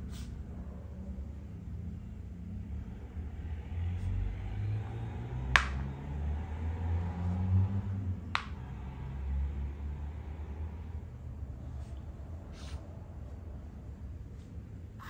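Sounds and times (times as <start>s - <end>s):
low steady rumble: 0.0s - 15.0s.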